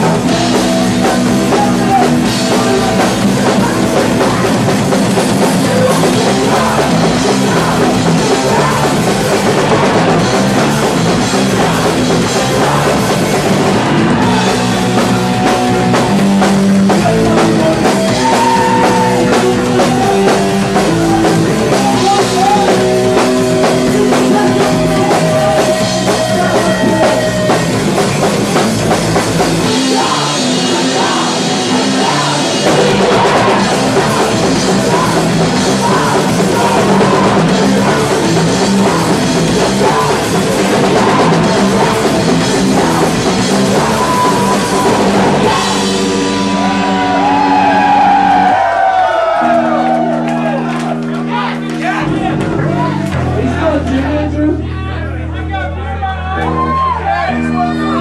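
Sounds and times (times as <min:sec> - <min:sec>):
person singing into microphone: 0:00.0 - 0:15.9, 0:29.6 - 0:47.0
drum kit: 0:00.0 - 0:54.2
electric guitar: 0:00.0 - 0:55.4.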